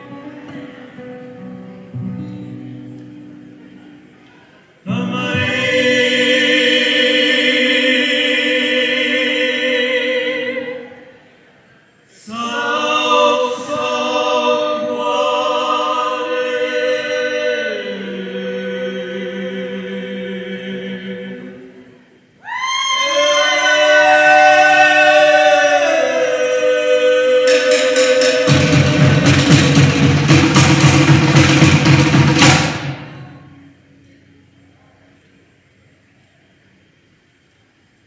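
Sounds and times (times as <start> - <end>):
choir singing unaccompanied: 4.8 - 11.3, 12.1 - 33.6.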